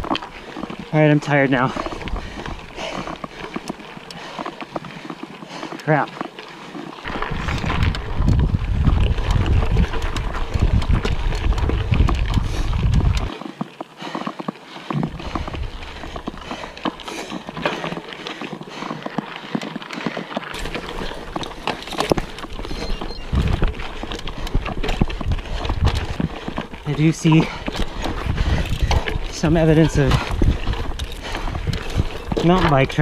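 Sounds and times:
wind rumbling on microphone: 0.0 - 4.3, 7.0 - 13.3, 14.9 - 18.1, 20.6 - 33.0
bike rattling over rocks: 0.0 - 33.0
tyres crunching on gravel: 0.0 - 33.0.

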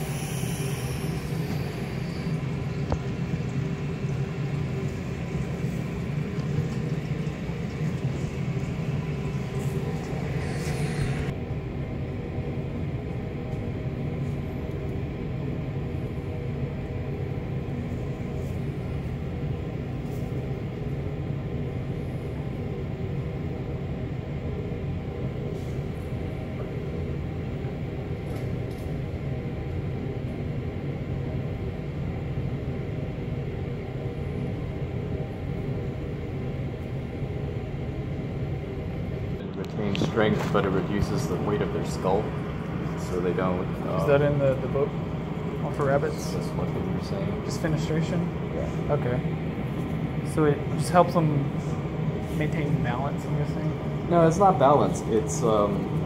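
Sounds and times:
high hiss: 0.0 - 2.6
low rumble and hum: 0.0 - 56.0.

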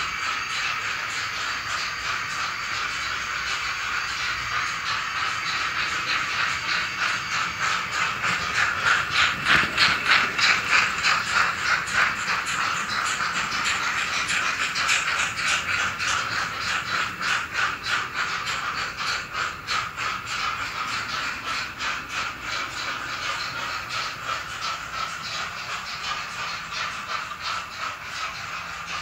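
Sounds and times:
model train motor whirring: 0.0 - 29.0
rhythmic train clicks: 0.0 - 29.0.

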